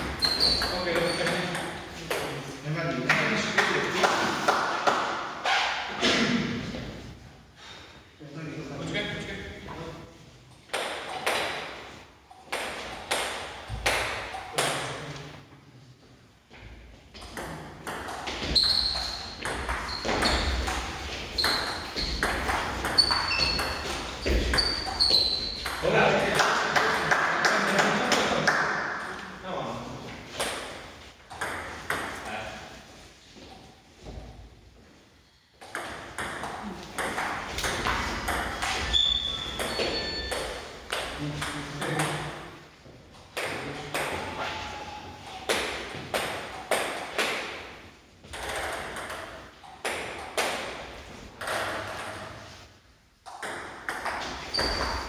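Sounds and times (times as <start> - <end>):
table tennis ball hits: 10.7 - 11.8, 17.2 - 27.8, 35.6 - 42.4, 45.4 - 52.6, 53.2 - 55.0.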